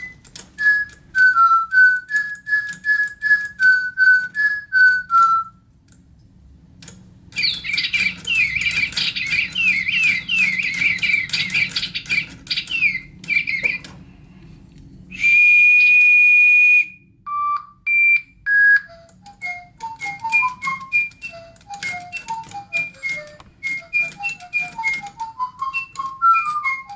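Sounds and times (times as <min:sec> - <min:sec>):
loud held whistle: 0:00.0 - 0:05.6, 0:15.1 - 0:26.9
electronic toy birds chirping: 0:07.3 - 0:13.9, 0:17.3 - 0:26.9.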